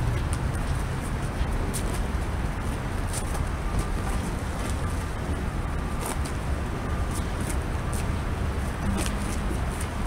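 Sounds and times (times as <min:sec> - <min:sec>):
distant traffic: 0:00.0 - 0:10.0.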